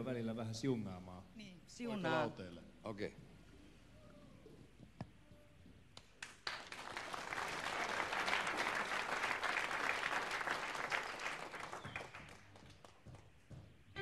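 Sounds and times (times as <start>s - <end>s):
audience applauding: 6.2s - 13.1s.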